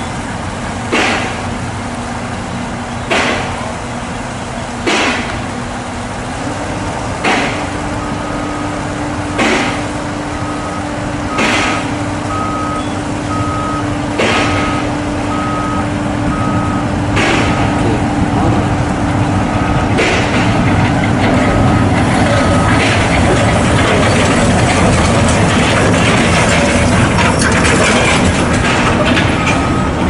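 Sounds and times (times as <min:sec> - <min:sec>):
truck engine hum: 0:00.0 - 0:30.0
truck warning beeper: 0:07.5 - 0:24.2, 0:28.7 - 0:30.0.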